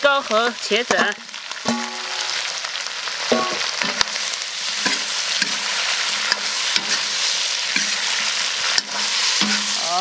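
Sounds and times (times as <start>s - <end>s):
food sizzling in a wok: 0.0s - 10.0s
spatula clinking on wok: 1.7s - 2.2s
spatula scraping a wok: 3.2s - 10.0s.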